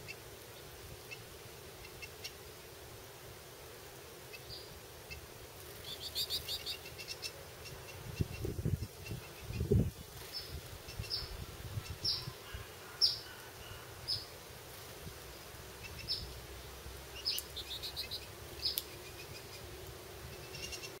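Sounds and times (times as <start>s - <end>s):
finches chirping: 5.8s - 14.3s, 15.4s - 16.4s, 17.1s - 21.0s.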